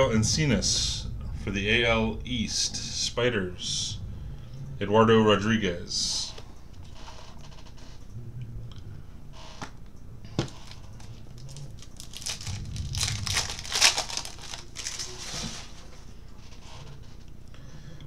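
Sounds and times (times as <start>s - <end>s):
foil wrapper tearing and crinkling: 10.6s - 15.8s.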